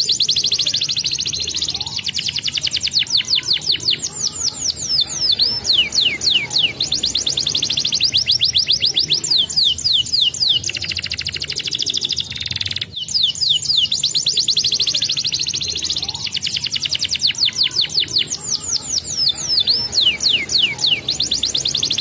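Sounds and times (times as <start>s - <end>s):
canary singing: 0.0s - 22.0s.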